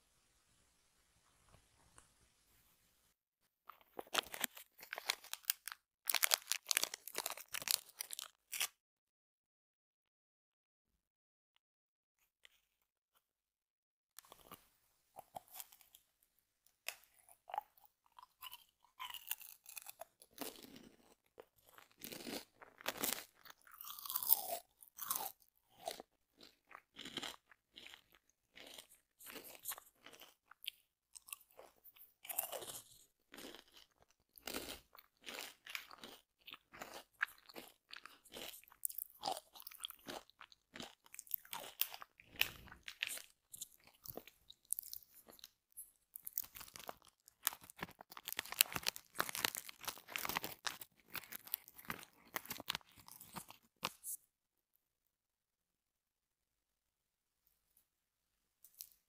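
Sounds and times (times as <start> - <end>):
chewing crunchy snacks: 3.7 - 8.8, 14.2 - 14.6, 15.2 - 16.0, 16.8 - 54.2, 58.7 - 59.0.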